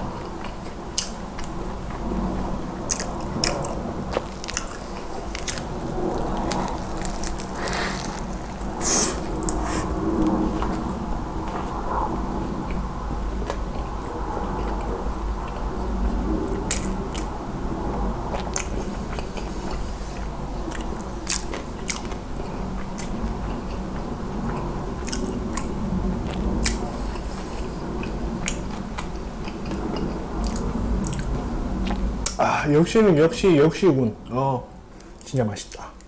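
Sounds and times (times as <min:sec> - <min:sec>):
person chewing with wet mouth clicks: 0:00.2 - 0:02.0, 0:02.8 - 0:10.8, 0:16.5 - 0:17.3, 0:18.3 - 0:32.4.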